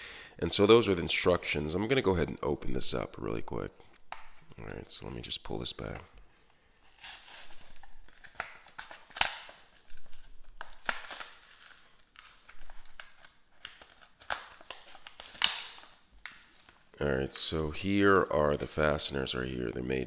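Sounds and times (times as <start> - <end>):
paper ripping: 6.8 - 16.9
plastic crinkling: 6.8 - 17.2.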